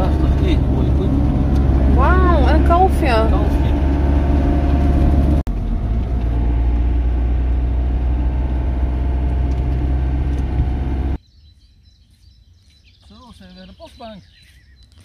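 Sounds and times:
van engine and road rumble: 0:00.0 - 0:11.2
faint outdoor background: 0:00.0 - 0:15.0.

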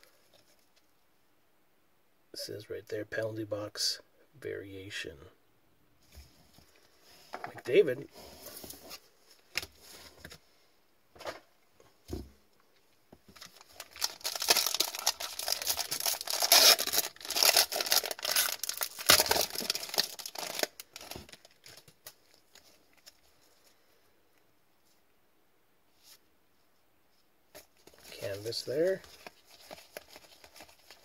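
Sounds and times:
foil pack crinkling and tearing: 0:13.4 - 0:23.2, 0:27.9 - 0:31.0.

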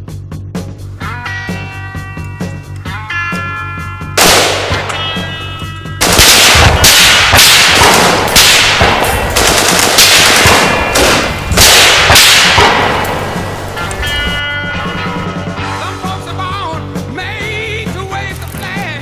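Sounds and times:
rifle shots: 0:04.2 - 0:05.3, 0:06.0 - 0:13.8.

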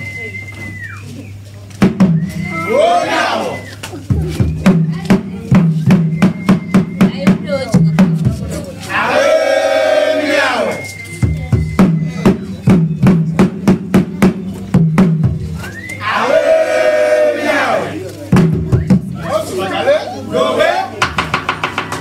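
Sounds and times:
performers shouting a call: 0:02.3 - 0:03.8, 0:08.6 - 0:10.9, 0:15.7 - 0:18.2, 0:19.2 - 0:21.2
sharp fast drum strokes: 0:04.1 - 0:08.6, 0:21.0 - 0:22.0.

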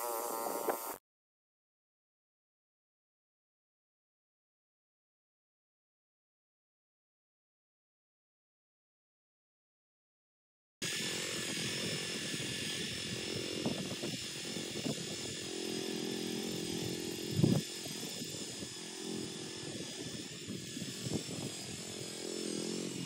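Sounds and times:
tiller engine running: 0:10.8 - 0:23.0.

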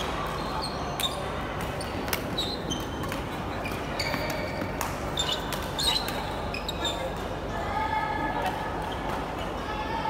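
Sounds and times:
racket hitting shuttlecock: 0:00.0 - 0:06.4
shoes squeaking on floor: 0:00.0 - 0:07.2
background noise: 0:00.0 - 0:10.0.

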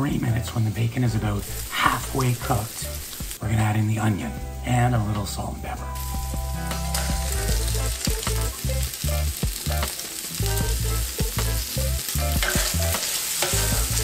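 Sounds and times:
bacon sizzling in a pan: 0:00.1 - 0:04.6, 0:06.0 - 0:14.0
utensil scraping a pan: 0:12.4 - 0:14.0.

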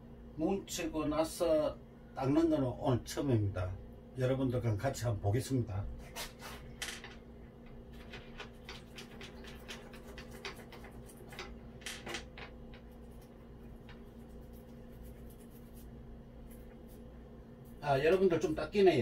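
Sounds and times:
faint steady hum: 0:00.0 - 0:19.0
toothbrush scrubbing metal: 0:08.4 - 0:11.5, 0:12.8 - 0:17.1.

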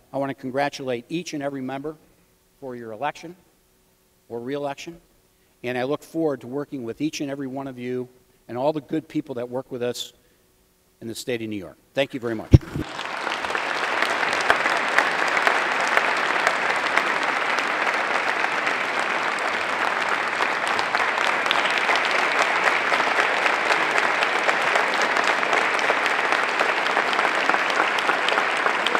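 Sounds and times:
audience applause: 0:12.5 - 0:28.9.

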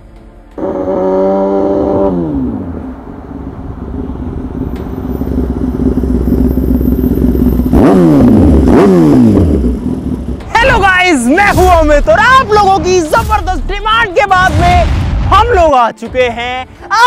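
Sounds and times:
engine revving: 0:00.5 - 0:10.8.

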